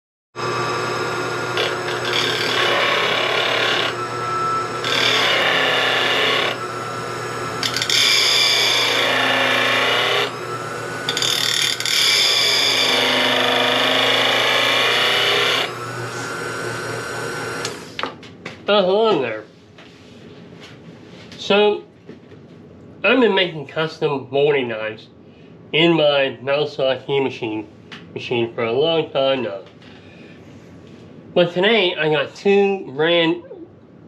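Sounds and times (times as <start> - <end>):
harsh grinding of steel: 0.4 - 18.0
motor humming: 0.4 - 18.0.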